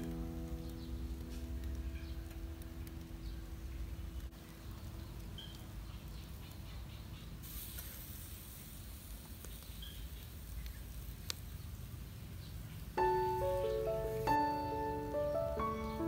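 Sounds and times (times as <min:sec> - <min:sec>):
faint steady hum: 0:00.0 - 0:06.1
faint bird chirps: 0:00.2 - 0:08.8, 0:09.4 - 0:16.0
high hiss: 0:07.1 - 0:16.0.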